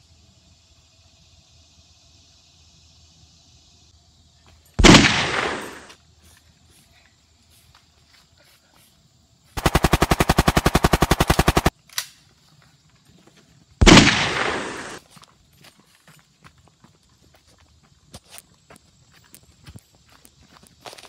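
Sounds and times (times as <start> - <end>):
loud blast: 4.8 - 5.9, 13.8 - 15.0
machine-gun burst: 4.8 - 5.9, 9.6 - 11.7, 13.8 - 15.0.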